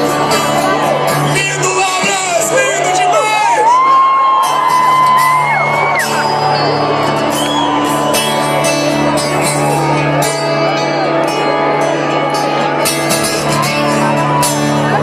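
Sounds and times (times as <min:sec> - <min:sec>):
arena crowd cheering: 0:00.0 - 0:15.0
live rock band playing: 0:00.0 - 0:15.0
long whistle: 0:07.2 - 0:08.5.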